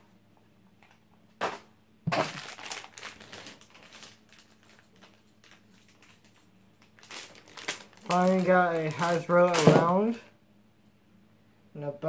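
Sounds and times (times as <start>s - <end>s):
plastic bag crinkling: 2.1s - 10.2s.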